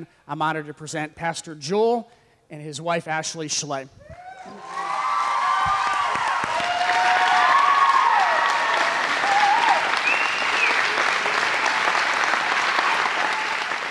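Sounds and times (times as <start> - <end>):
crowd applauding: 4.4 - 13.9.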